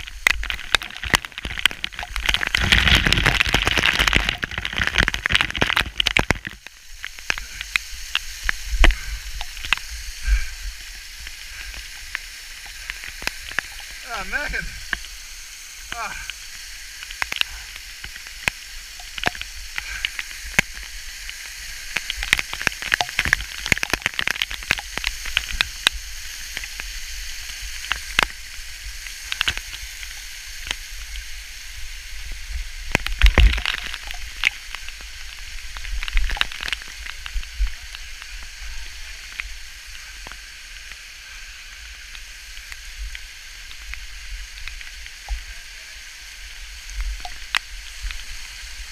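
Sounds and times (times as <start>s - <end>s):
water splashing with droplet taps: 0.0s - 31.3s, 32.5s - 38.6s, 46.7s - 48.6s.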